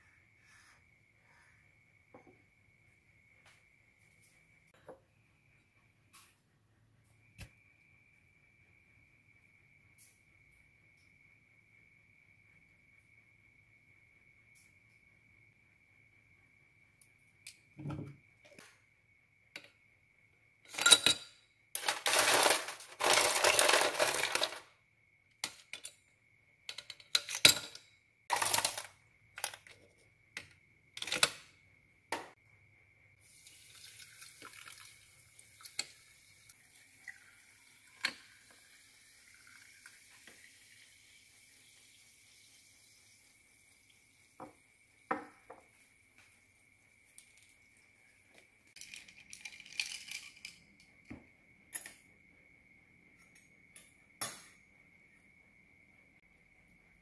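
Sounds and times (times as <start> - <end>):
ice cubes clattering into glass: 21.8 - 24.6, 27.2 - 29.7, 48.8 - 50.6
carbonated water fizzing: 33.2 - 45.1.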